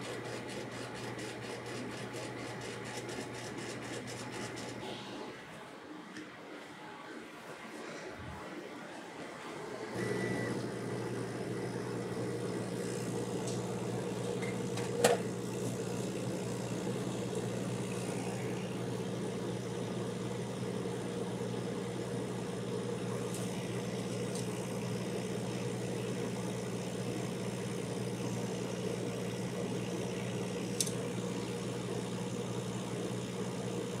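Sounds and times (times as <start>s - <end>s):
laser engraver humming: 9.9s - 34.0s.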